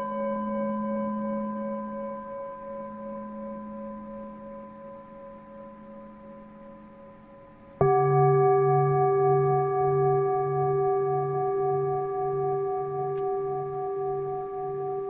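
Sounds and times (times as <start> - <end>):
lower-pitched bowl ringing: 0.0 - 15.0
singing bowl ringing: 0.0 - 15.0.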